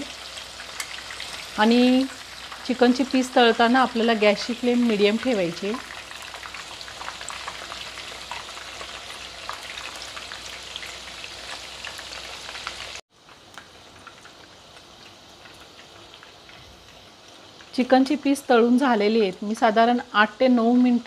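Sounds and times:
chicken deep-frying in hot oil: 0.0 - 21.0.

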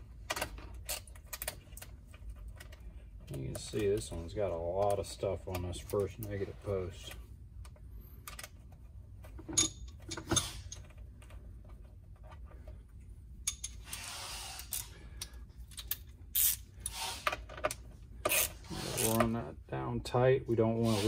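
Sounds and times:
metal terminals clinking: 9.2 - 11.3, 13.4 - 14.0
metal scraping rub: 18.3 - 19.3, 20.8 - 21.0.

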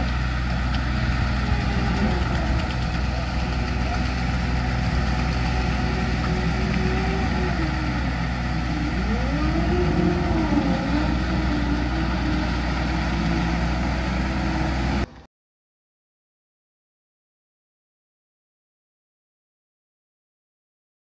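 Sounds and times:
off-road vehicle engine running: 0.0 - 15.3.

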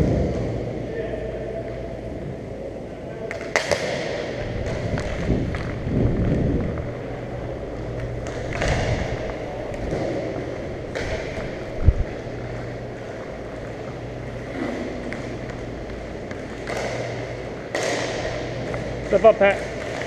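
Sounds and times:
skates gliding on ice: 3.3 - 20.0.

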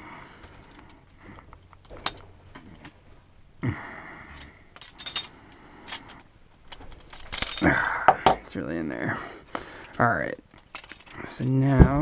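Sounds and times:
metal clicks and rattling: 0.6 - 2.3, 4.4 - 7.7, 9.8 - 11.6.

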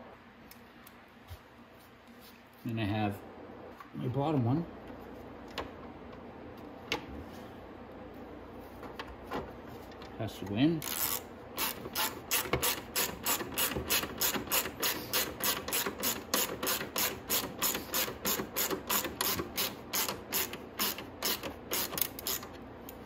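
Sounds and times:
ratchet wrench clicking: 10.8 - 22.6.

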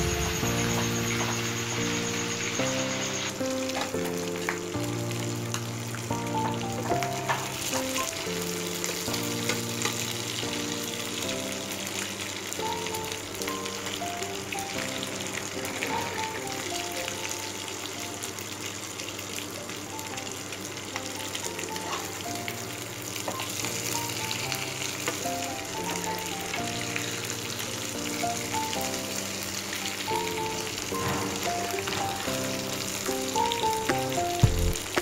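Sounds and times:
background music: 0.0 - 12.0, 28.4 - 35.0
meat sizzling in a pan: 0.0 - 35.0.

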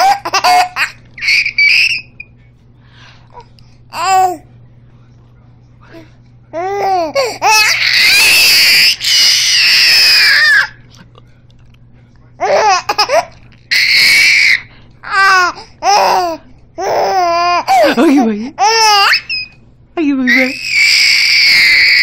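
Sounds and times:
baby squealing: 0.0 - 2.2, 7.4 - 10.8, 13.7 - 17.6, 18.6 - 19.6, 20.3 - 22.0.

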